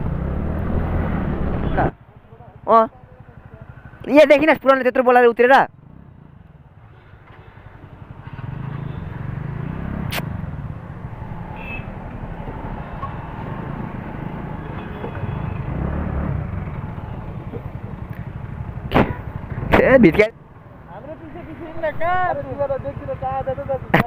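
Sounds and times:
road traffic noise: 0.0s - 24.0s
sharp click: 10.0s - 10.4s.

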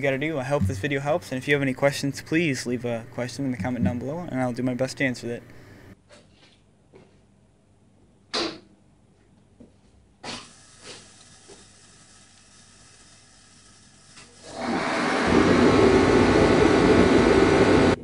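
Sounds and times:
heater fan and burner rushing: 10.2s - 18.0s.

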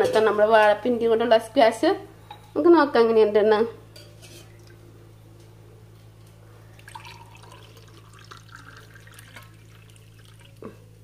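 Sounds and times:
liquid pouring into glass: 6.8s - 10.8s.

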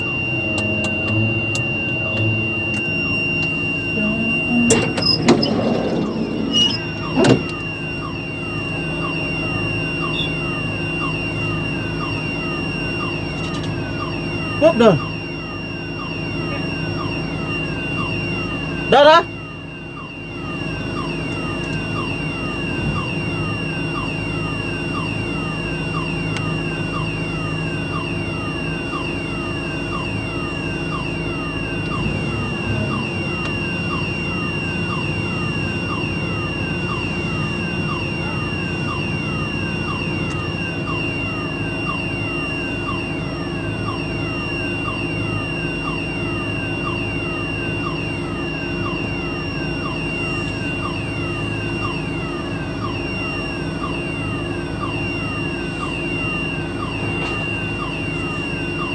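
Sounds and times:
low engine hum: 0.0s - 14.8s, 20.0s - 41.9s
electronic warning alarm: 0.0s - 58.9s.

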